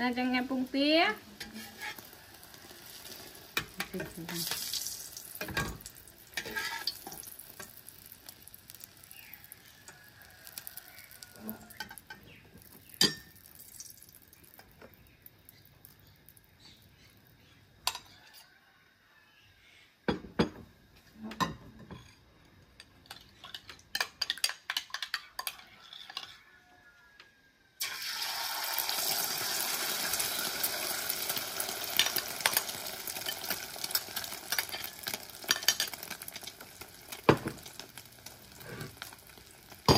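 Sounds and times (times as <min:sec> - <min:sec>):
egg sizzling in hot oil: 0:00.0 - 0:18.2, 0:22.9 - 0:26.6, 0:27.8 - 0:39.9
spatula scraping a steel wok: 0:01.3 - 0:04.6, 0:06.3 - 0:07.7, 0:23.1 - 0:26.8.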